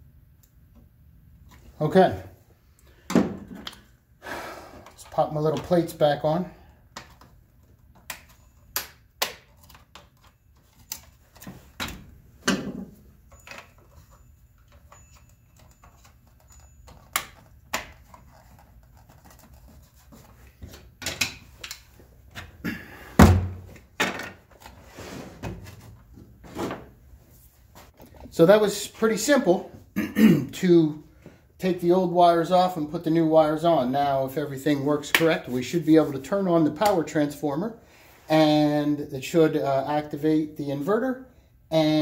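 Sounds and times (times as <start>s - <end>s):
heavy thunk: 23.2s - 23.7s.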